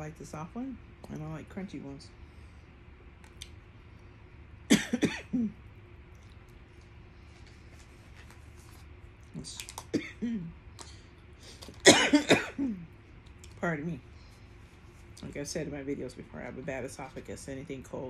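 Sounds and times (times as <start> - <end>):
woman coughing: 4.7 - 5.6, 9.9 - 10.5, 11.8 - 12.9.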